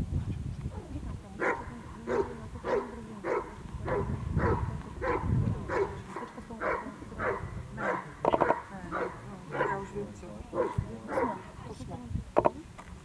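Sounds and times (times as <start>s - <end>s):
dog barking sharply: 10.6s - 11.4s.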